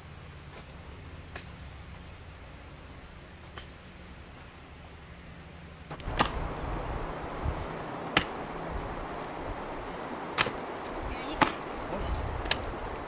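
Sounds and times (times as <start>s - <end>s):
digging tool chopping plant: 5.9s - 6.4s, 8.1s - 8.4s, 10.3s - 10.6s
rustling noise: 5.9s - 13.0s.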